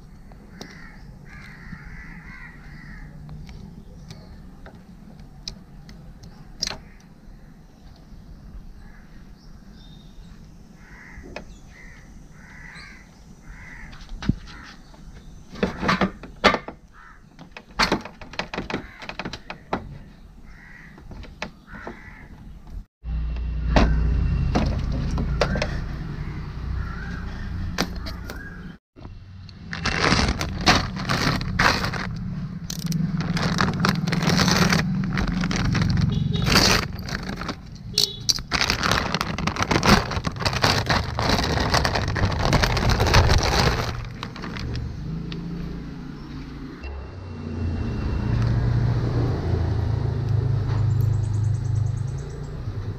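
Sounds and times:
plastic packet crinkling: 29.6 - 44.9.

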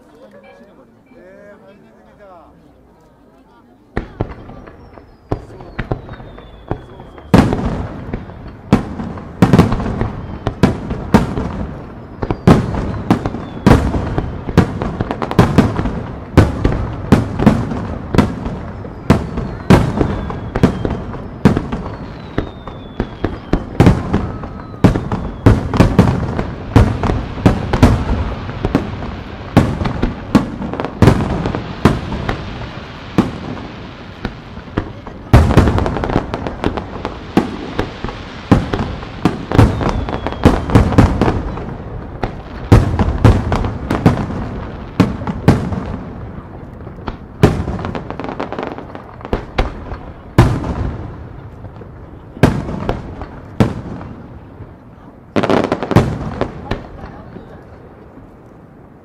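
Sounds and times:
faint falling whistles: 4.5 - 7.5, 12.0 - 13.8, 18.8 - 25.7, 39.6 - 40.8.

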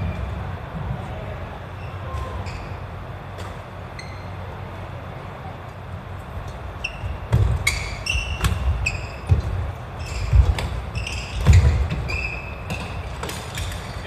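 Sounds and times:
shoes squeaking on wooden floor: 6.7 - 14.0.

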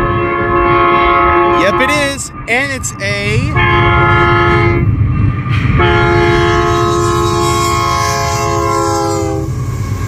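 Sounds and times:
train air horn blasts: 0.0 - 2.0, 3.5 - 4.9, 5.6 - 10.0
diesel engines rumbling: 0.0 - 10.0.

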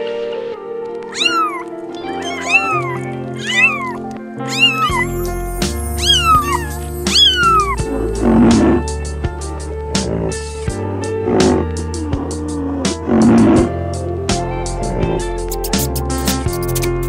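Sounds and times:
background music: 0.0 - 17.0
kittens meowing: 1.1 - 8.8.

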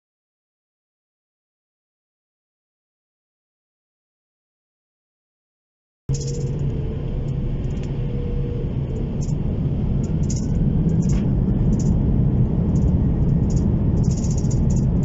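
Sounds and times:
light rattling ticks: 6.1 - 8.0, 8.9 - 12.1, 12.7 - 15.0
jet engine cabin rumble: 6.1 - 15.0.

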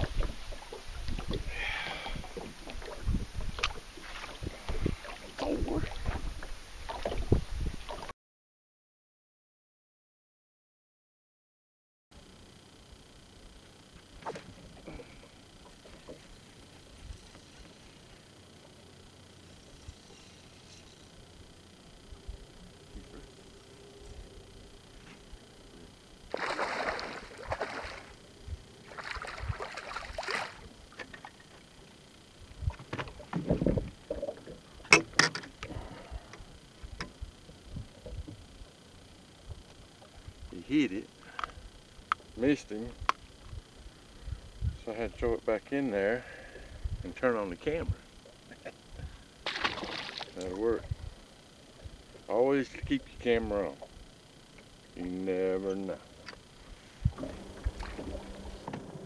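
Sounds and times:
wind rumbling on microphone: 0.0 - 8.1, 28.4 - 29.8, 32.5 - 34.3, 42.9 - 45.3, 50.7 - 51.2, 57.0 - 59.0
fish splashing in water: 26.3 - 28.2, 28.8 - 31.4, 49.4 - 50.4.

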